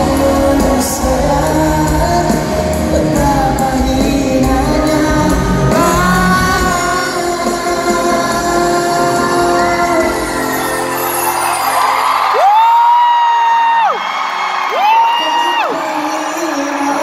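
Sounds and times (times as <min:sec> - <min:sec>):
man singing pop ballad: 0:00.0 - 0:10.9, 0:14.8 - 0:17.0
amplified band with heavy bass: 0:00.0 - 0:14.0.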